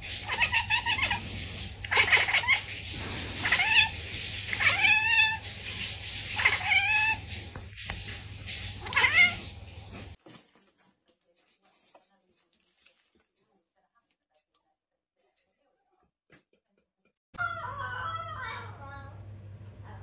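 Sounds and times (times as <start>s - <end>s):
cat meowing: 0.2s - 1.2s, 1.8s - 2.7s, 3.4s - 5.4s, 6.4s - 7.2s, 8.8s - 9.5s.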